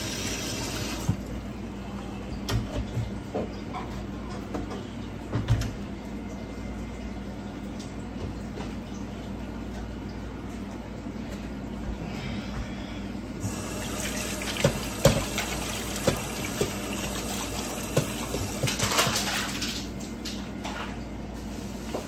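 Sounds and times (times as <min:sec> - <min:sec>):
water running: 0:00.0 - 0:01.5, 0:13.4 - 0:22.0.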